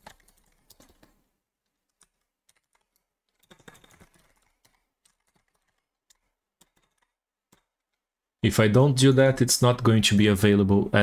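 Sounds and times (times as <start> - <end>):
typing on a computer keyboard: 0.0 - 8.2.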